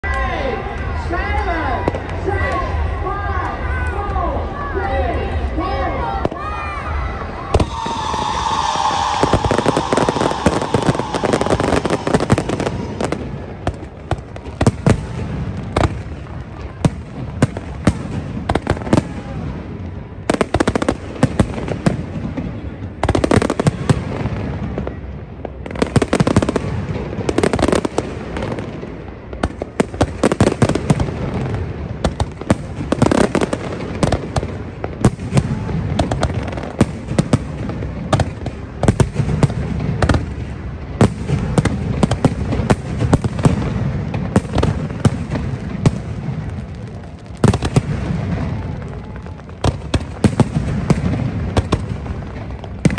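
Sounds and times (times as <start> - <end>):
fireworks bangs and pops: 7.5 - 52.9.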